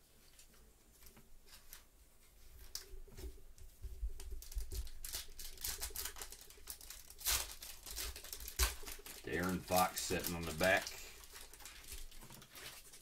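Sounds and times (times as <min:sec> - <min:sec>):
cards rustling: 0:04.2 - 0:13.0.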